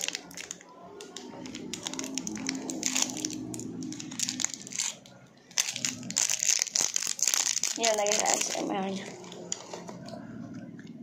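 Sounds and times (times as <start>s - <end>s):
plastic wrapper crinkling: 0.0s - 10.1s.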